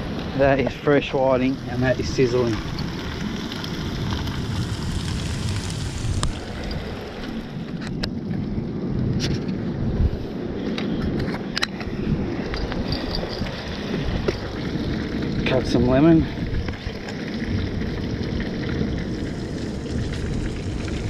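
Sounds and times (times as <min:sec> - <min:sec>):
wind rumble on microphone: 0:00.0 - 0:21.0
fish sizzling in hot oil: 0:01.4 - 0:07.2, 0:13.8 - 0:21.0.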